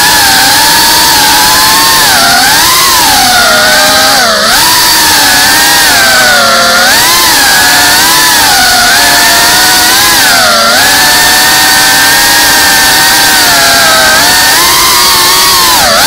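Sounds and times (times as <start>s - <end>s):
drone motors whining: 0.0s - 16.0s.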